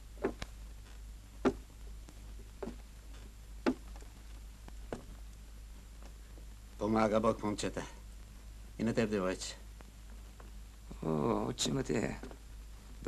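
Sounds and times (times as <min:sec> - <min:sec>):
low steady hum: 0:00.0 - 0:13.0
short sharp knocks: 0:01.4 - 0:01.7, 0:02.6 - 0:02.8, 0:03.6 - 0:03.9, 0:04.9 - 0:05.1.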